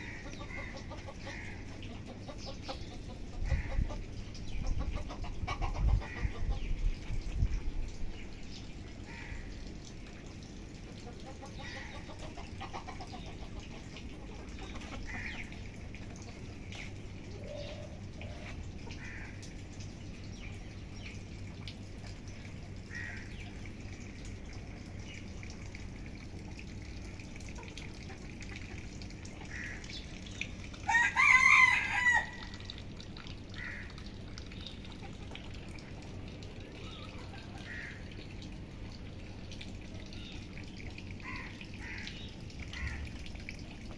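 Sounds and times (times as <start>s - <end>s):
low background hum: 0.0s - 43.9s
rooster crowing: 30.9s - 32.5s.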